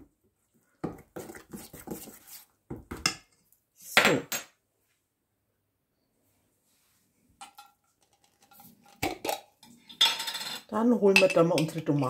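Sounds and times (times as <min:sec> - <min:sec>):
glass jar clinking: 0:07.4 - 0:11.8.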